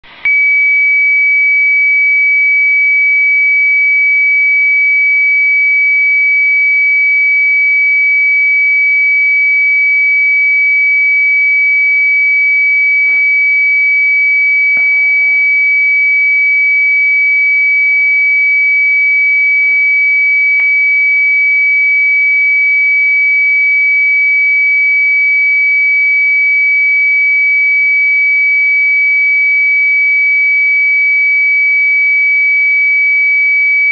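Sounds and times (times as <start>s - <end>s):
steady high-pitched radio tone: 0.0s - 33.9s.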